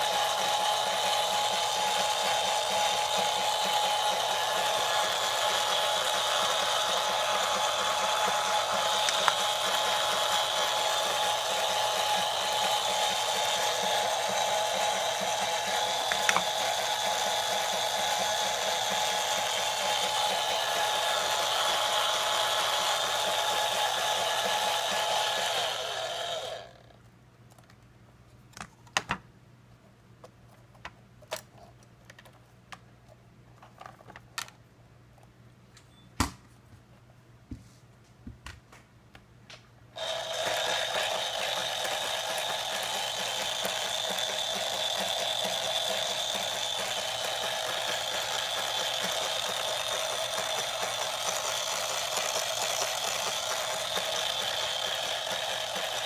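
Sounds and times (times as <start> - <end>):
small electric motor whirring: 0.0 - 26.9, 40.0 - 56.0.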